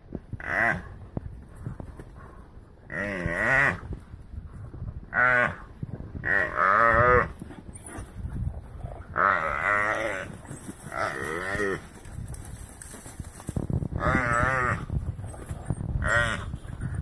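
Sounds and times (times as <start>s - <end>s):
antelope bellowing in distress: 6.2s - 8.0s, 9.1s - 11.9s, 14.0s - 14.9s, 16.0s - 16.5s.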